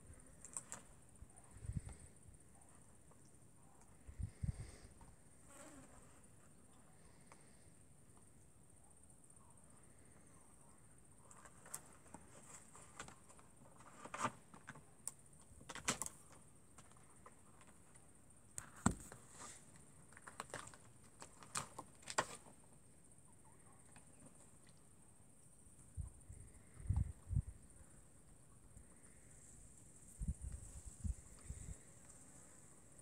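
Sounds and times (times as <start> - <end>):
insect chirr: 0.0 - 33.0.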